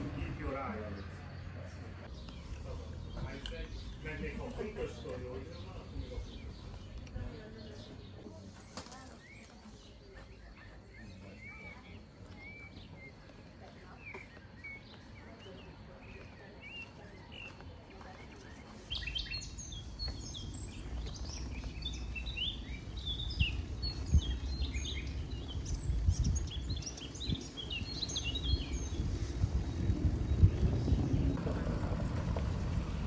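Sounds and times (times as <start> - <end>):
songbirds chirping and trilling: 0.0 - 33.0
low rumble: 25.4 - 33.0.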